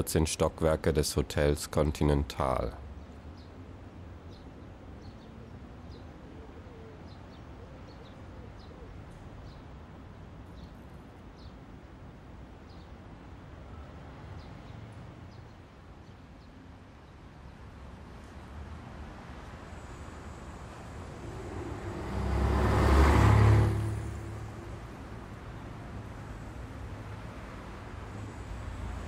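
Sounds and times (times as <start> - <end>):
distant traffic rumble: 0.0 - 29.0
small birds chirping: 4.2 - 9.8, 10.4 - 11.6, 13.8 - 17.7.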